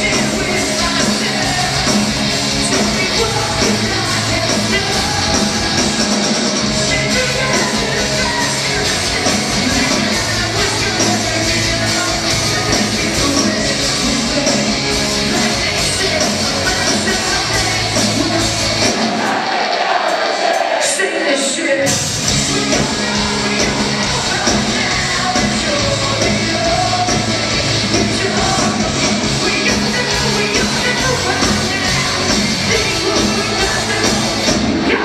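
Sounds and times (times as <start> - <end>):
live rock band with singer: 0.0 - 35.0.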